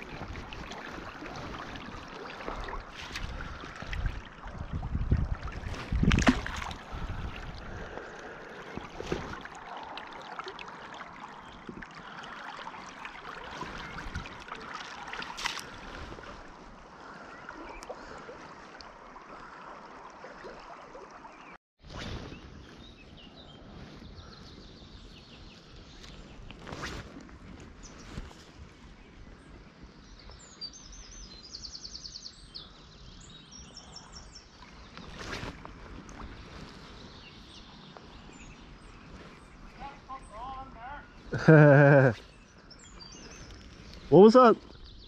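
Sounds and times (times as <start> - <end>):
river water flowing over stones: 0.0 - 21.6.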